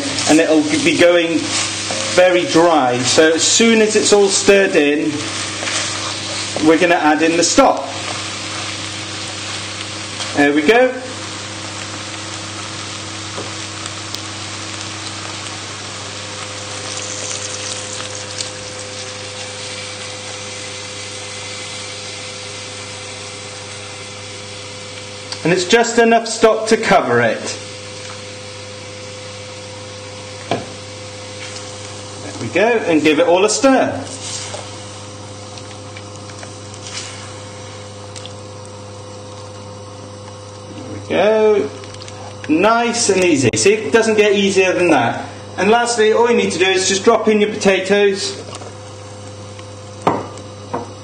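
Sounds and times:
stock simmering in a pot: 0.0 - 26.8, 33.6 - 42.5
meat and vegetables sizzling: 0.0 - 41.2
wooden spoon stirring: 5.2 - 10.5.

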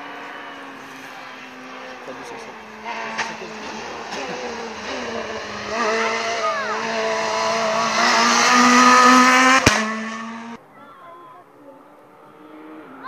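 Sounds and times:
rally car engine passing: 0.0 - 13.0.

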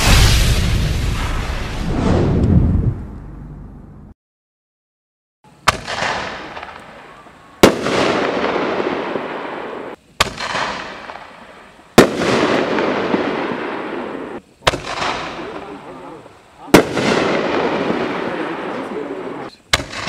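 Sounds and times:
crackling hiss: 5.5 - 20.0.

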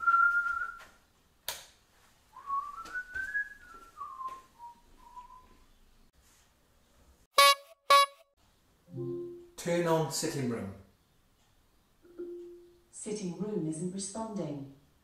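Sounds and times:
man whistling a tune: 0.0 - 0.9, 2.4 - 5.5.

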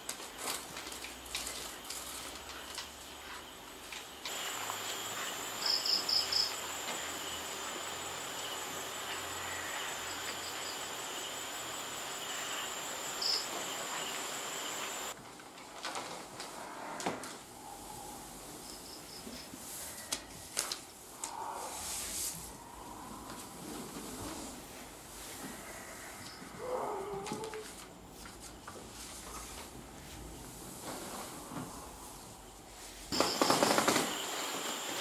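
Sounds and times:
crickets trilling: 0.0 - 15.2, 17.4 - 27.6, 31.2 - 35.0
higher insect chirps: 0.0 - 15.2, 17.4 - 20.1, 31.7 - 35.0.

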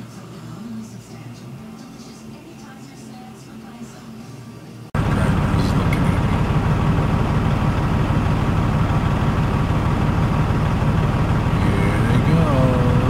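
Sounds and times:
diesel truck engine idling: 5.0 - 13.0.

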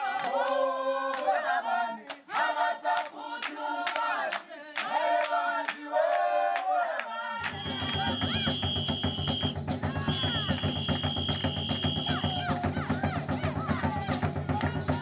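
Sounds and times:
choir singing chant-like phrases: 0.0 - 8.6, 12.0 - 15.0
steady percussion beat: 7.4 - 15.0.

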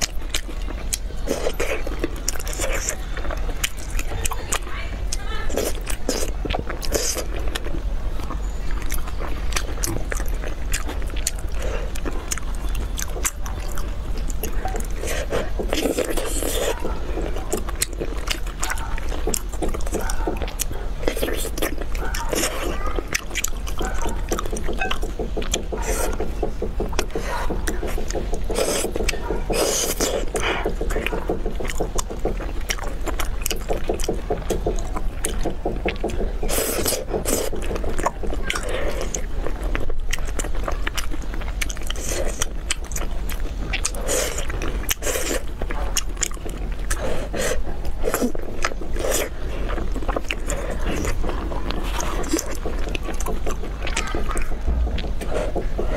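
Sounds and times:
sticky mouth smacking clicks: 0.0 - 55.9
wet chewing and slurping: 0.0 - 55.9.

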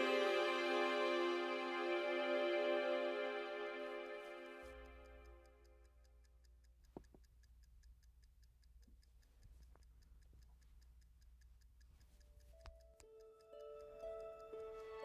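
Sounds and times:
soft music: 0.0 - 5.8, 12.3 - 15.0
faint regular ticking: 3.0 - 15.0.

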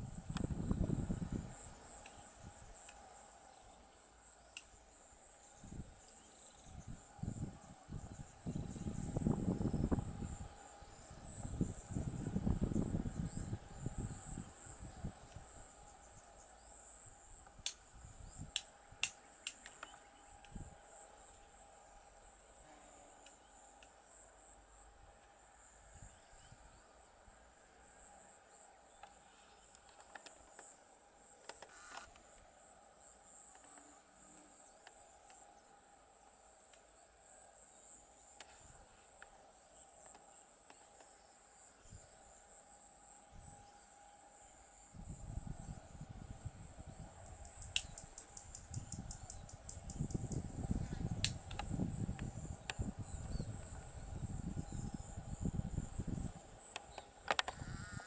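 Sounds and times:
faint steady hum: 0.0 - 58.0
insects chirping: 0.0 - 58.0.

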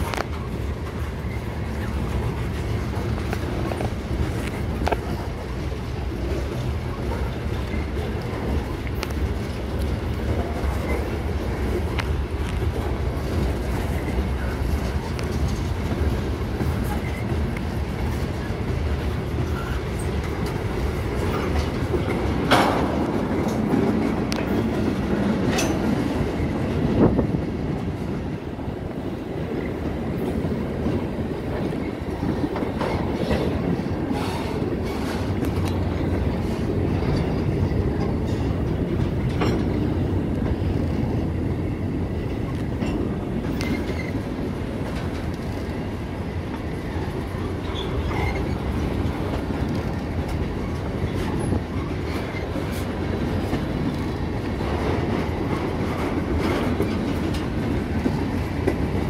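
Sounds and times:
train wheels rumbling on rails: 0.0 - 59.0
wheels clicking over rail joints: 0.0 - 59.0.

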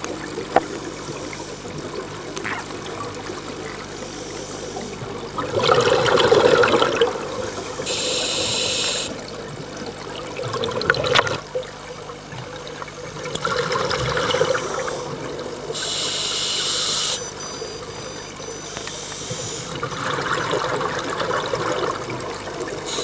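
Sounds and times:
exhaled bubbles: 4.6 - 16.1, 19.5 - 23.0.

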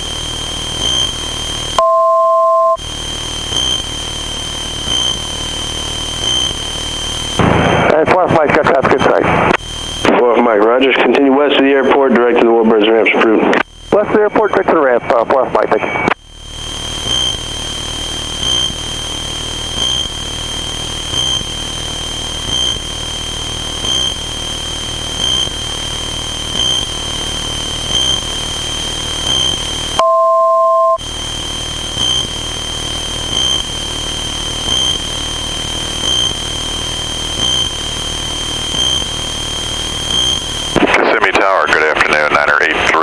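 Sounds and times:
aircraft engine and propeller in cabin: 0.0 - 2.1, 2.7 - 12.5, 13.6 - 30.2, 31.0 - 43.0
short two-tone beep: 1.8 - 2.8, 29.3 - 31.0.

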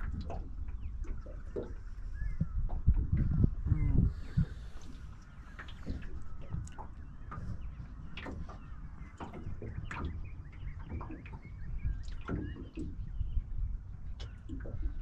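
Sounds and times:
wind rumble on microphone: 0.0 - 15.0
birds calling: 3.6 - 15.0.

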